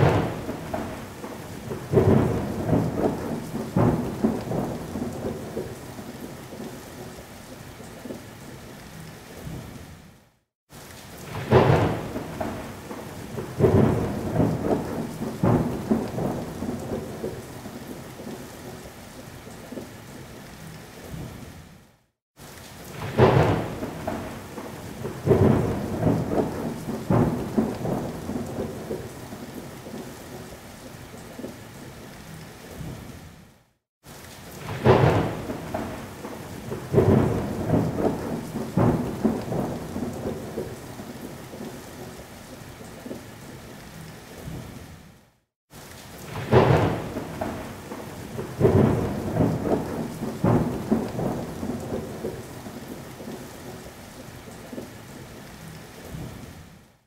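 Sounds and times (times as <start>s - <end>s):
thunder rumbling: 0.0s - 6.8s, 11.2s - 17.6s, 22.9s - 30.5s, 34.6s - 42.1s, 46.2s - 53.5s
steady rain: 0.0s - 57.0s.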